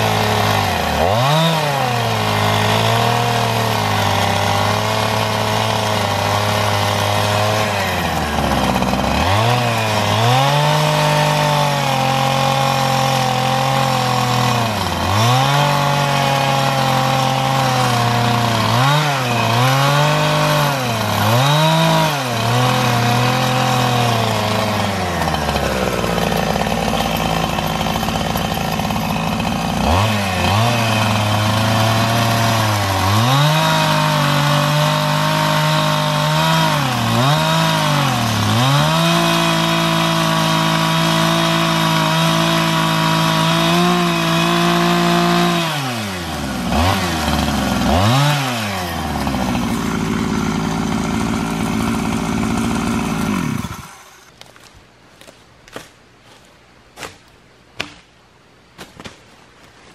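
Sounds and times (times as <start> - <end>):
chainsaw engine revving: 0.0 - 55.3.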